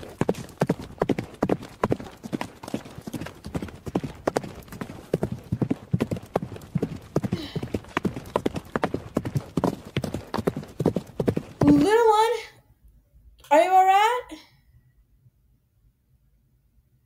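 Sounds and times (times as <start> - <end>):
horse hooves clip-clopping: 0.0 - 12.3.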